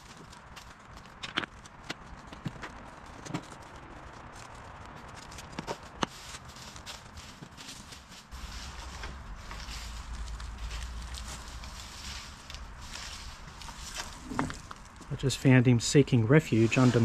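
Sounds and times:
rustling and shuffling: 0.0s - 17.0s
low rumble: 8.3s - 15.2s.

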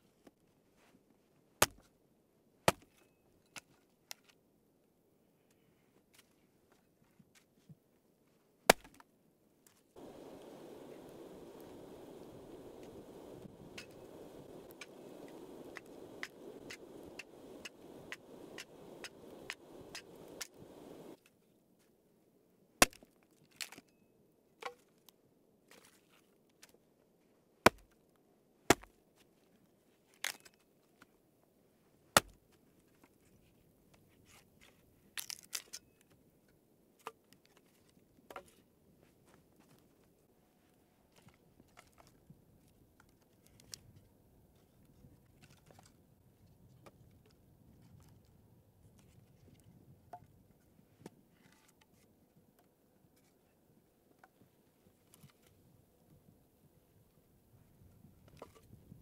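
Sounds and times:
axe chopping wood: 8.7s - 9.0s, 28.7s - 28.9s, 32.2s - 32.4s
rustling hiss with faint ticks: 10.0s - 21.2s.

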